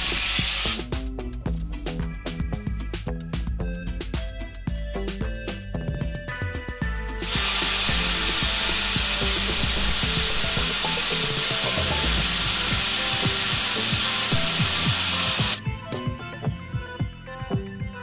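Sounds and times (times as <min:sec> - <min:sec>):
angle grinder grinding steel: 0:00.0 - 0:00.8, 0:07.2 - 0:15.6.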